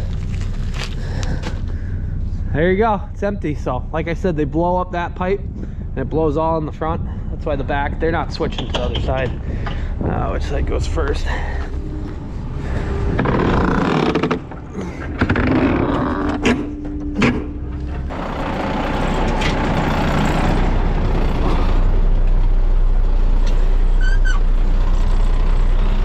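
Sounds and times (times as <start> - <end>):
truck engine idling: 0.0 - 26.0
metal door banging: 13.1 - 19.8
brief squeal: 23.9 - 24.5.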